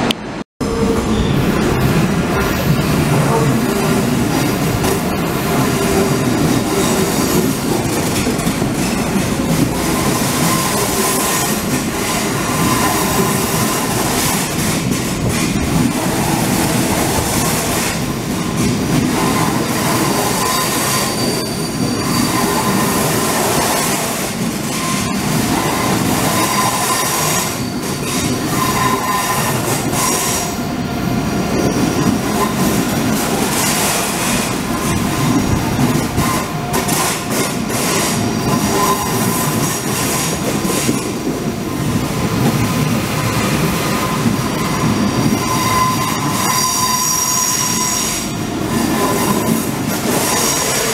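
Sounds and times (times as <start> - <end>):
train wheels rumbling on rails: 0.0 - 50.9
high wheel squeals: 20.0 - 23.1, 24.7 - 30.6, 44.5 - 49.5.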